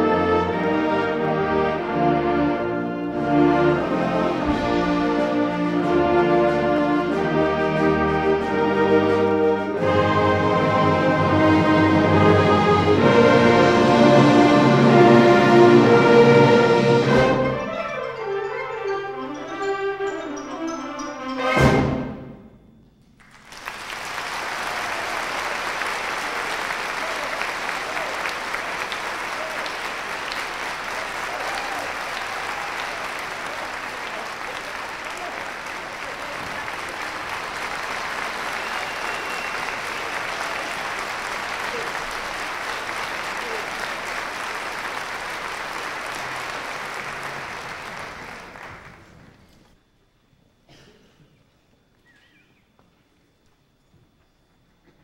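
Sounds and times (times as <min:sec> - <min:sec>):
audience applause: 0:23.2 - 0:49.6.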